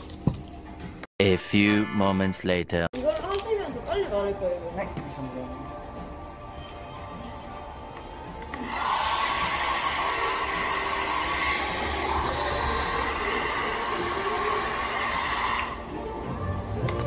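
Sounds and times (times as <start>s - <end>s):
hair dryer blowing with whine: 8.5s - 15.9s.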